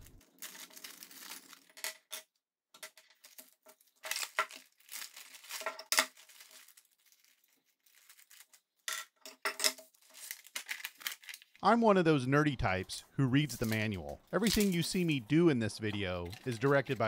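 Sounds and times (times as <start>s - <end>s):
plastic bags crinkling: 0.0s - 1.8s, 3.1s - 8.7s, 9.8s - 11.6s.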